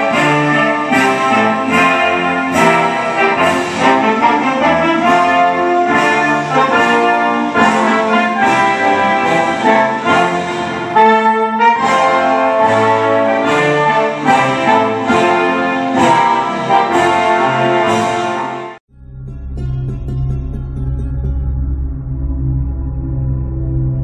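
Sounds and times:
orchestral music with brass: 0.0 - 18.8.

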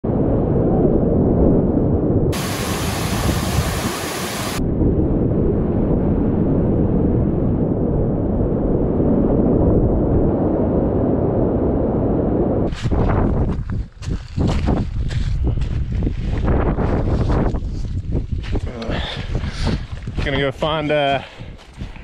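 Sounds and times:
whitewater rushing: 2.4 - 4.6.

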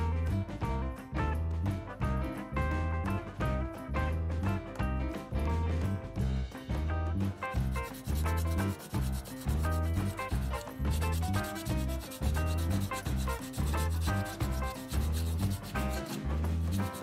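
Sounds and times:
music with bass beat: 0.0 - 17.0
sandpaper scratching on metal: 7.7 - 17.0.

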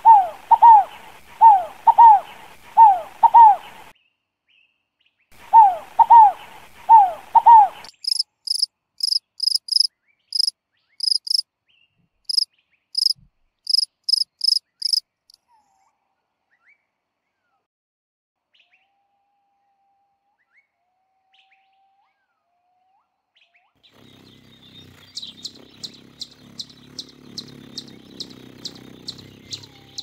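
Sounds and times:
dove cooing: 0.0 - 3.9, 5.4 - 7.9, 24.2 - 30.0
cricket chirping: 7.4 - 11.4, 13.0 - 15.0.

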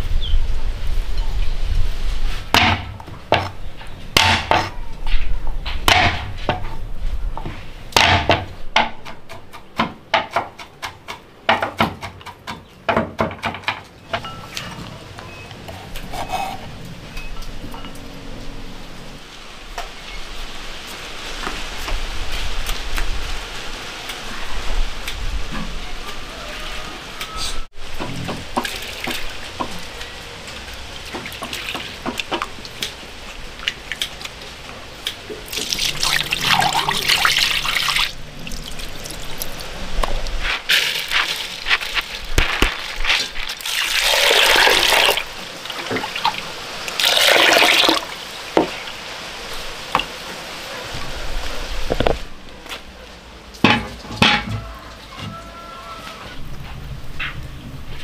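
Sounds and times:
water sloshing and pouring: 28.0 - 29.8, 30.5 - 49.0.

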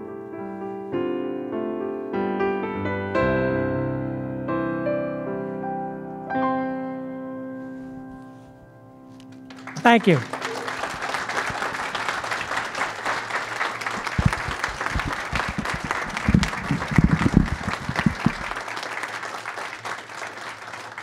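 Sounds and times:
people applauding: 9.4 - 21.0
low thumps: 14.1 - 18.6.

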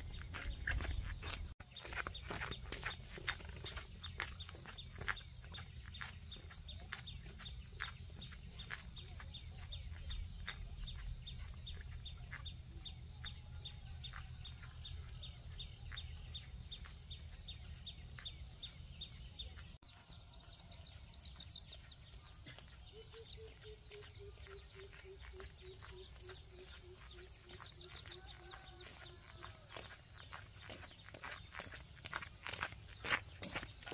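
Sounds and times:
birds calling: 0.0 - 13.3, 21.4 - 33.9.

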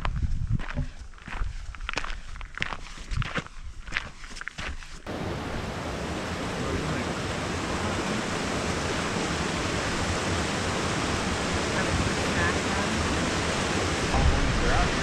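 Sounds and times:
fast-flowing water rushing: 5.1 - 15.0.

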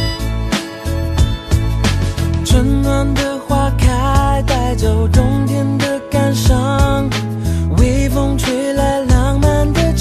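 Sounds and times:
pop music with steady beat: 0.0 - 10.0.

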